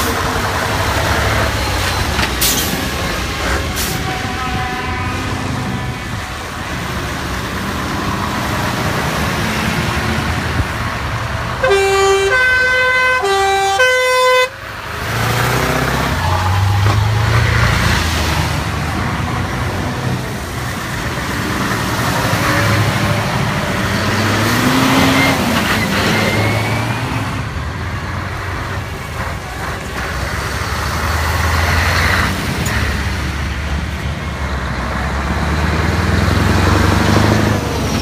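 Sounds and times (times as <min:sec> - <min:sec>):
diesel lorry engines: 0:00.0 - 0:38.0
multi-note air horn: 0:11.6 - 0:14.6.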